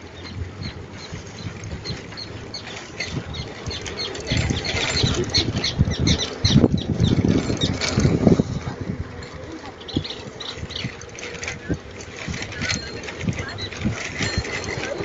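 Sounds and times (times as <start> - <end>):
bicycle tyre rumble on pavement: 0.0 - 15.0
wind buffeting microphone: 0.0 - 15.0.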